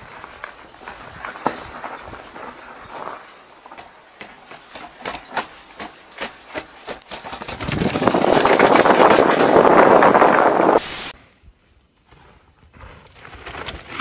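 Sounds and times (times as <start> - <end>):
wind rushing on microphone: 7.5 - 11.1.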